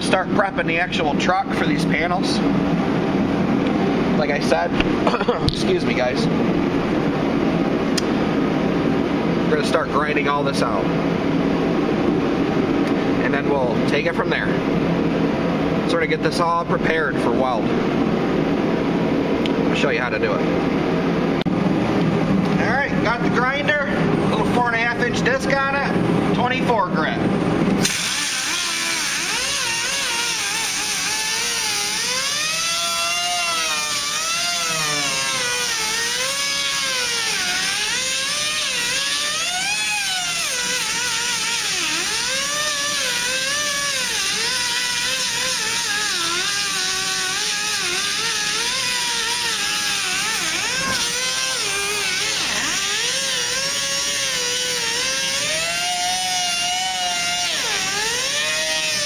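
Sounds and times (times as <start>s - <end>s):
angle grinder grinding metal: 27.8s - 59.0s.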